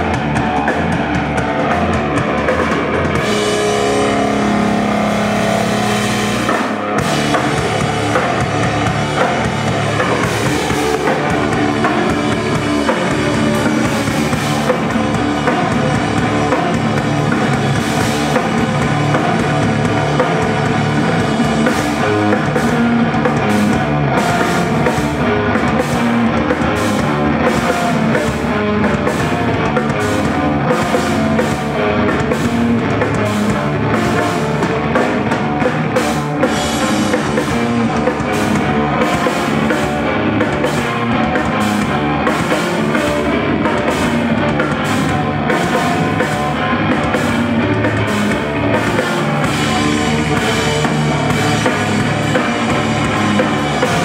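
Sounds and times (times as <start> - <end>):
drum kit beat: 0.0 - 54.0
electric bass: 0.0 - 54.0.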